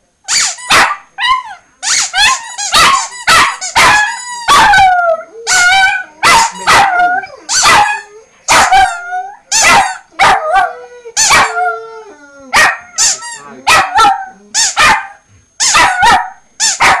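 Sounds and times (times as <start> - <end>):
small dog barking: 0.7 - 1.1, 2.2 - 4.8, 6.2 - 6.9, 7.5 - 9.0, 9.6 - 10.7, 11.3 - 11.6, 12.5 - 17.0.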